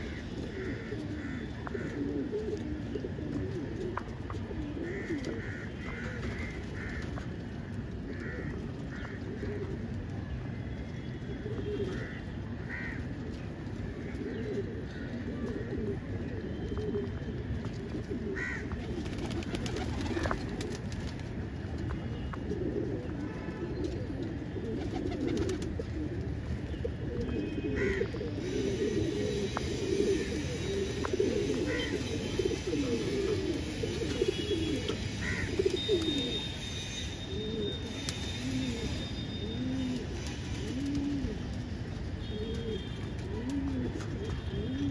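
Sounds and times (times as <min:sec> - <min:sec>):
pigeons cooing: 0:00.0 - 0:07.0, 0:08.0 - 0:10.0, 0:14.0 - 0:20.9, 0:22.4 - 0:44.9.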